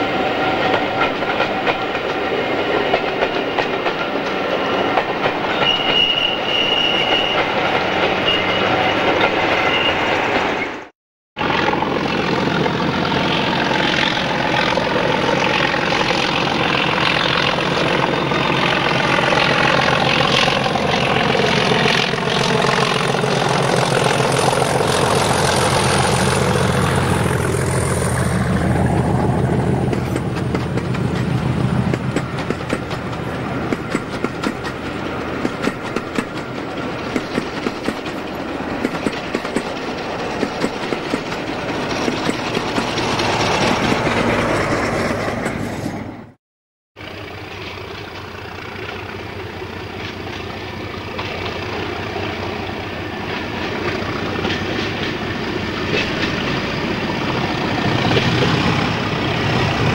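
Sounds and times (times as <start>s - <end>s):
diesel locomotive engine passing: 0.0s - 46.4s, 47.0s - 59.9s
train wheels clacking over rail joints: 0.5s - 9.5s, 28.8s - 45.8s, 47.1s - 59.9s.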